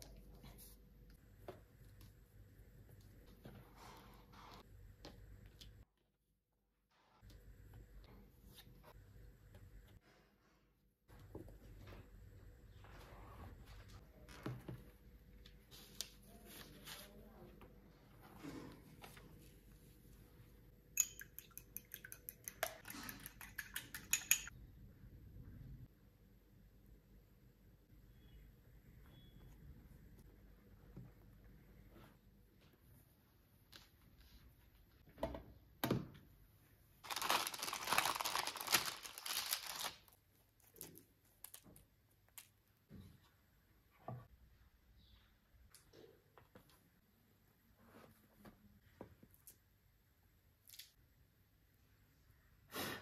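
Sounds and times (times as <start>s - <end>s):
fork clinking in ceramic bowl: 21.0s - 22.6s, 23.2s - 24.5s
baking parchment crinkling: 37.0s - 42.4s.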